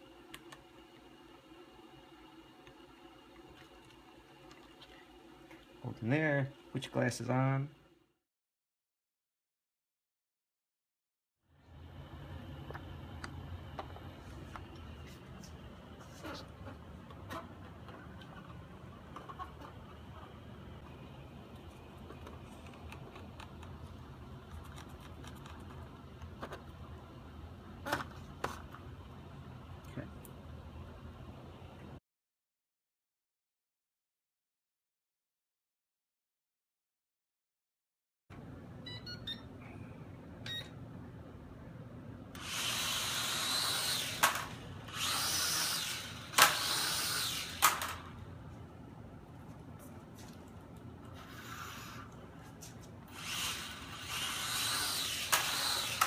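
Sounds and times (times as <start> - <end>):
toy quadcopter motors whining: 42.4 - 48.0, 53.1 - 56.0.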